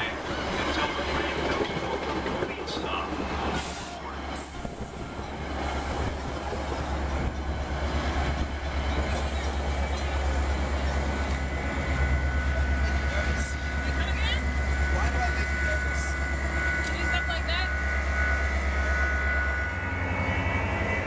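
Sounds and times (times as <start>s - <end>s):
train cars rolling on rails: 0.0s - 21.0s.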